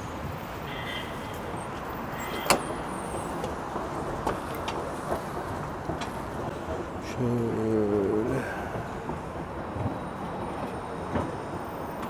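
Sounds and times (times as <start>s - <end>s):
traffic hum: 0.0s - 12.0s.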